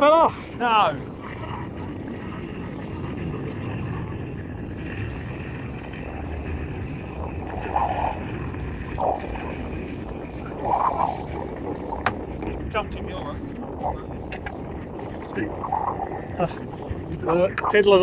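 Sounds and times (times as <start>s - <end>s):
water lapping against boat hull: 0.0s - 18.0s
wind on microphone: 0.0s - 18.0s.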